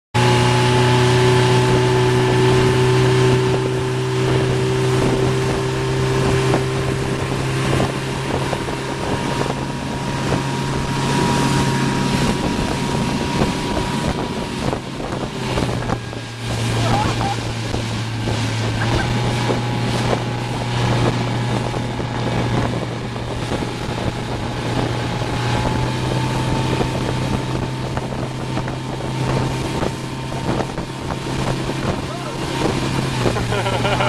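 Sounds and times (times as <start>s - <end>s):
churning boat wake: 0.2s - 34.0s
motorboat engine running: 0.2s - 34.0s
wind buffeting microphone: 0.2s - 34.0s.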